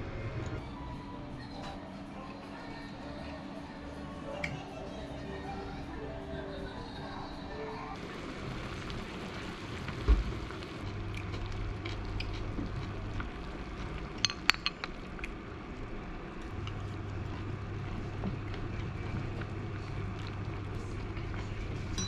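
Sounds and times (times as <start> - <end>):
broth bubbling and hissing: 8.0 - 10.9.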